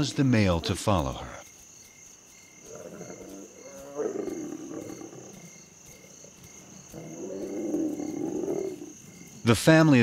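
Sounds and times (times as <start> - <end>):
crickets chirping: 0.0 - 10.0
lions growling: 2.6 - 9.5.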